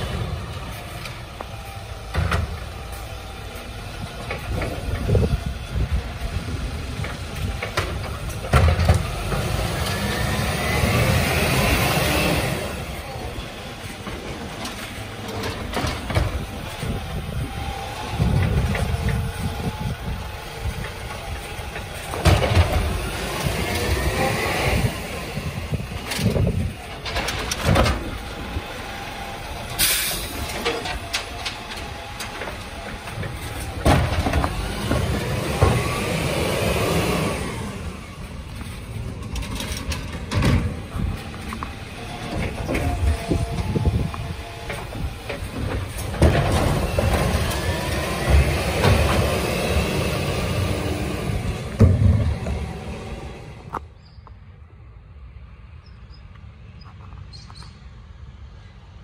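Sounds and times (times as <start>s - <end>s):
arm and bin clanking: 0.0s - 53.8s
diesel engine running: 0.0s - 53.9s
hydraulic arm whine: 0.0s - 53.9s
air hiss: 29.8s - 30.4s.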